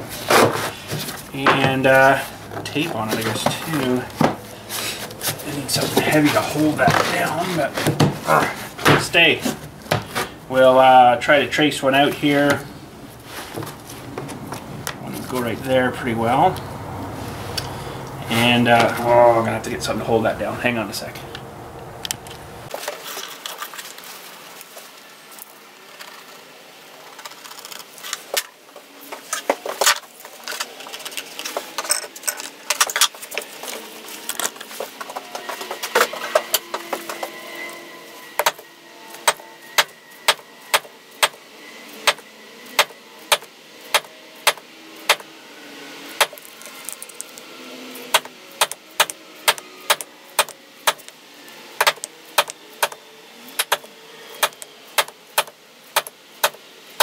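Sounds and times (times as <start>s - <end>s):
hand tools clicking and tapping: 38.4s - 38.6s, 48.1s - 51.2s, 51.8s - 53.0s, 53.6s - 56.6s.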